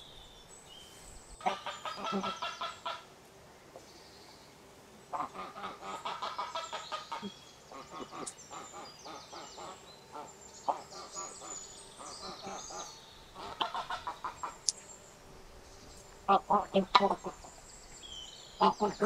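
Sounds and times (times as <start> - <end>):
geese honking: 1.4 - 3.1, 5.1 - 14.6, 16.2 - 17.5.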